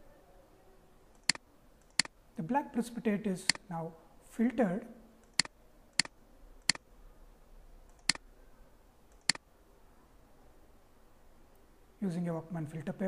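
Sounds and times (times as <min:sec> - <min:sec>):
computer mouse clicks: 0:01.1 - 0:02.2, 0:05.2 - 0:06.8, 0:07.9 - 0:08.2, 0:09.1 - 0:09.4.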